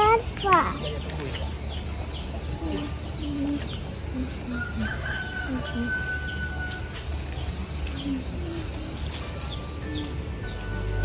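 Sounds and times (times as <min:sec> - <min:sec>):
rooster crowing: 0:04.5 - 0:07.0.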